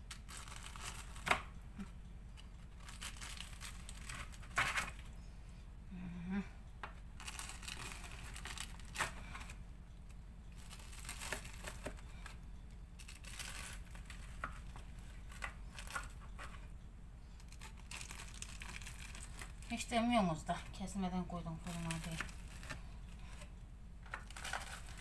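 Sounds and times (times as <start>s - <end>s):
pastry layers crunching: 0.0s - 5.2s, 6.1s - 20.6s, 21.4s - 25.0s.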